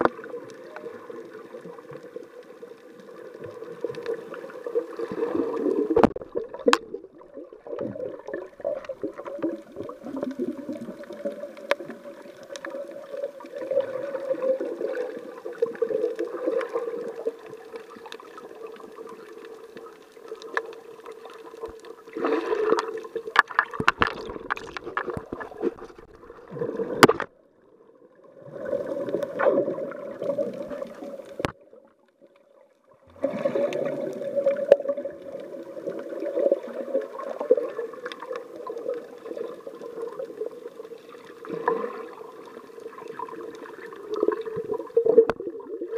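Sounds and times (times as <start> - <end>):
muffled underwater water rush: 0.0 - 45.9.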